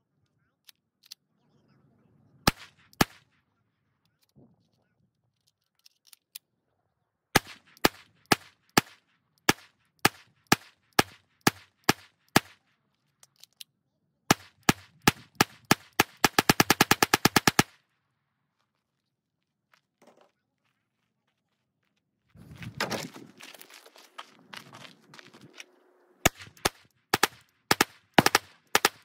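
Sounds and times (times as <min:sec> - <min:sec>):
pistol shots: 0:07.4 - 0:12.6, 0:14.3 - 0:17.7, 0:26.3 - 0:29.0.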